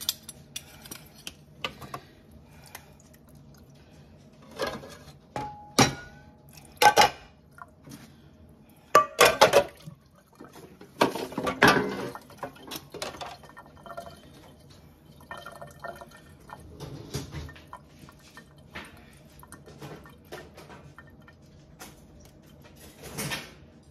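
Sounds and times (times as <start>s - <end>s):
dishes clattering in sink: 4.4s - 7.3s, 8.9s - 14.2s, 15.3s - 23.6s.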